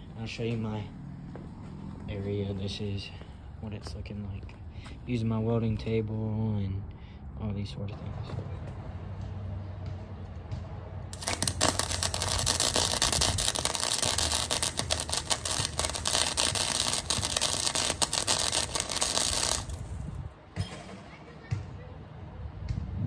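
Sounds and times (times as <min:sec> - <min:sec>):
welder arc crackling: 0:11.1 - 0:20.2.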